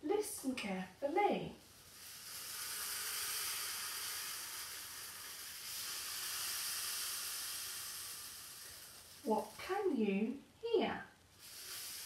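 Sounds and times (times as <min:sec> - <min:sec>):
rainstick beads trickling: 0:00.6 - 0:10.2, 0:11.2 - 0:12.0.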